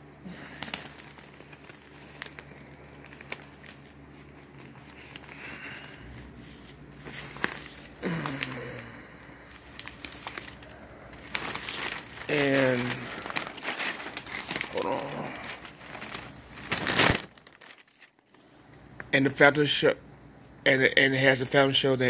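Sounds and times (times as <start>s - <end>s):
faint low hum: 0.0s - 22.0s
newspaper pages rustling: 0.3s - 18.6s
small clicks and crackles: 0.4s - 5.5s, 15.4s - 19.2s.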